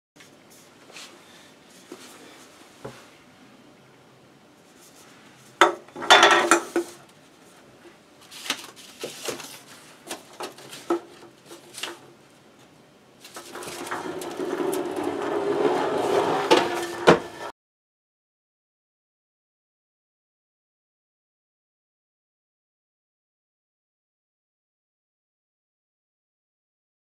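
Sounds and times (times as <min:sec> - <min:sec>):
cans clinking on wooden board: 0:05.6 - 0:07.0
cans rolling down a board: 0:05.6 - 0:07.0, 0:13.3 - 0:17.5.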